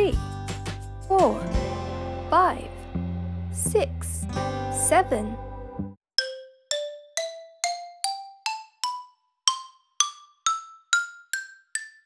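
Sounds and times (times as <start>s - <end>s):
ascending xylophone-like mallet notes: 6.2s - 12.0s.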